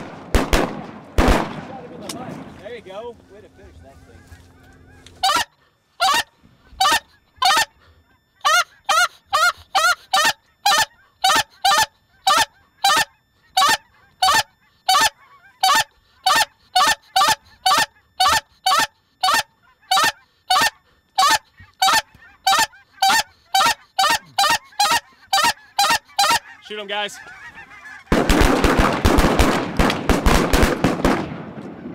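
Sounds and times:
goose call honks: 3.3 - 7.8, 8.4 - 28.3.

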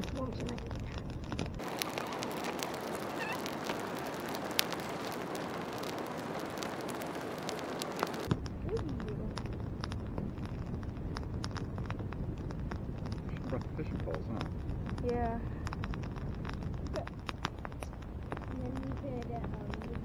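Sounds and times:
campfire crackling and popping: 0.0 - 20.0
faint bird calls: 1.8 - 3.7.

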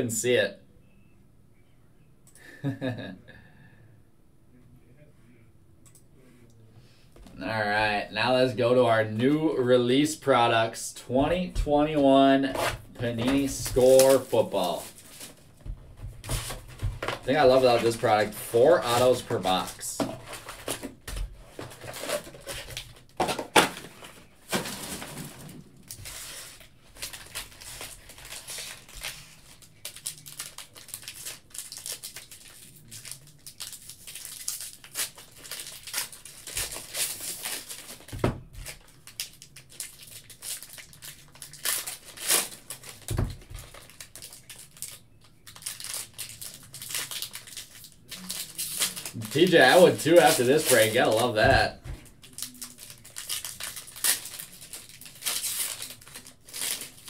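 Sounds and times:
foil packs crinkling: 11.8 - 15.6, 16.2 - 57.0.

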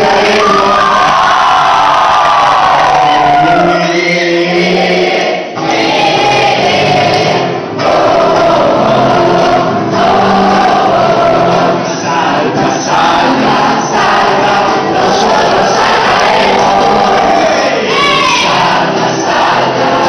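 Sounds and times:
crowd singing a religious song: 0.0 - 20.0.

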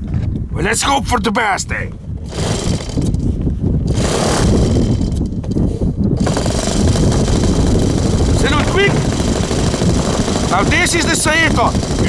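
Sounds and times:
model airplane engine running: 2.3 - 3.2, 3.9 - 5.2, 6.2 - 12.0.

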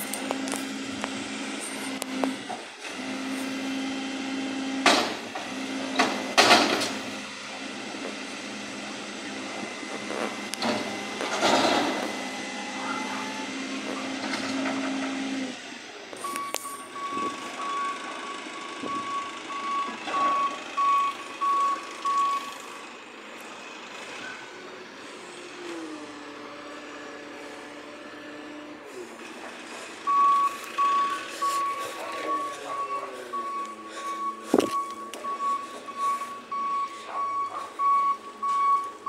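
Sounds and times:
engine revving: 0.0 - 39.0
garbage truck hum: 0.0 - 39.0
loud clunks: 4.8 - 7.0
reversing alarm beeping: 16.2 - 22.7, 29.7 - 39.0.

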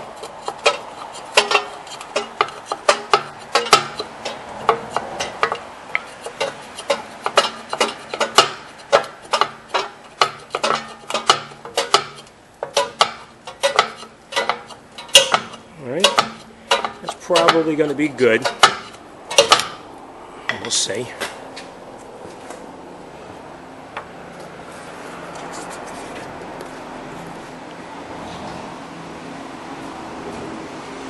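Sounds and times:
metallic clicking: 0.1 - 17.7, 18.4 - 19.8.

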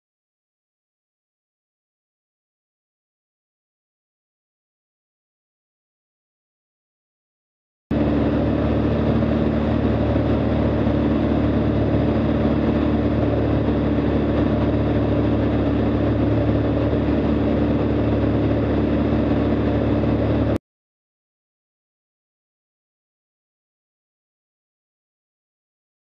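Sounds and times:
light aircraft engine droning: 7.9 - 20.6.

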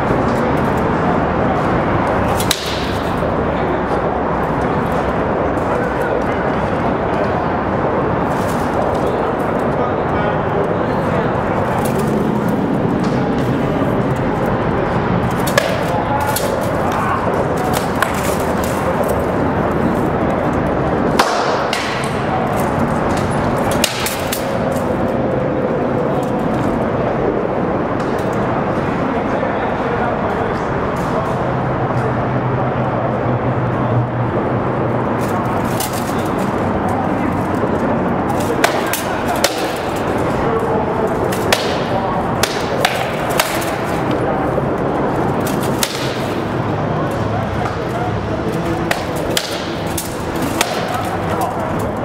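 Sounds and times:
loud background noise: 0.0 - 52.0
swords striking shields: 2.3 - 3.2, 23.7 - 24.7, 38.4 - 40.2, 41.2 - 44.2, 45.4 - 46.5, 48.9 - 51.2
sword blows cracking on shield: 41.4 - 44.0, 45.5 - 46.4.

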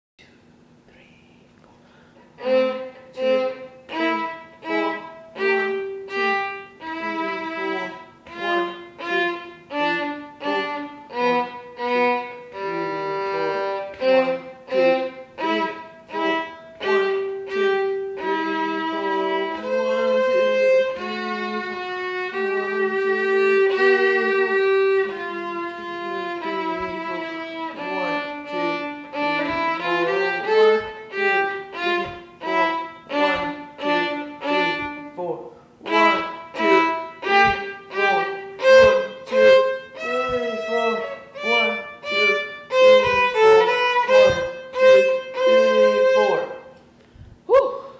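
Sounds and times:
solo violin melody: 2.3 - 46.8.

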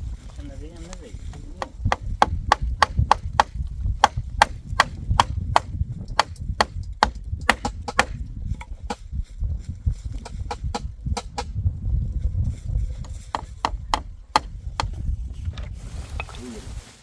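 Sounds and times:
hammer driving nails into wood: 1.6 - 8.3.

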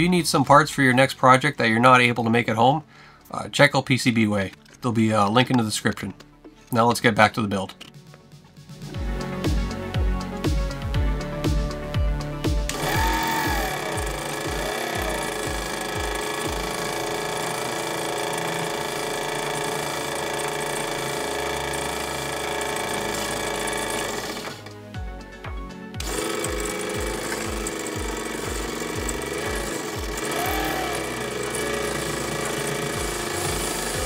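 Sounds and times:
background music with steady beat: 0.0 - 34.0
gear motor whining with rattle: 12.7 - 24.8, 26.0 - 34.0.

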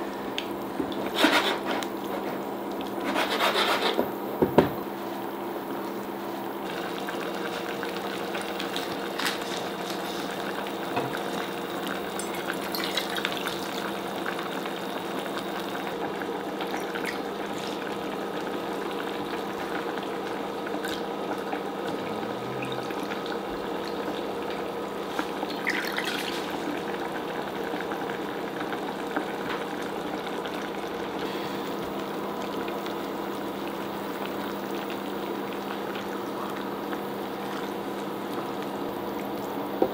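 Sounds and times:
steady hum: 0.0 - 28.5
broth bubbling in a saucepan: 0.0 - 39.9.

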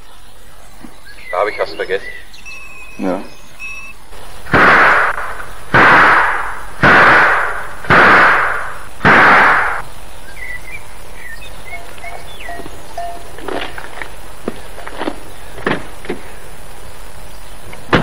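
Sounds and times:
faint birds chirping: 0.0 - 6.8, 7.5 - 18.0
pistol shots: 4.5 - 9.8.

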